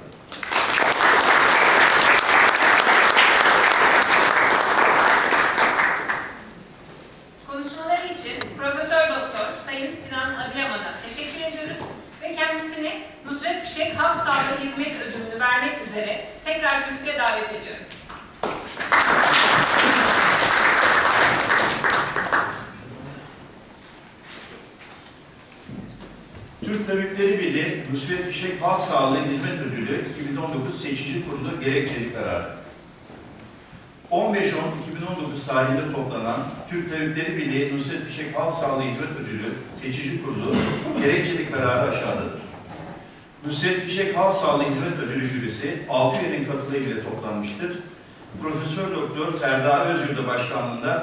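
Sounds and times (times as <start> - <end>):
audience applauding: 0.3 - 6.5, 18.4 - 23.0.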